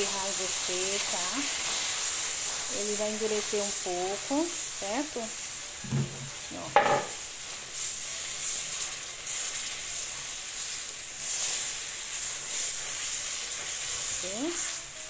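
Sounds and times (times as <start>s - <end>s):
caramel hissing and sputtering: 0.0s - 15.0s
spatula stirring: 7.4s - 15.0s.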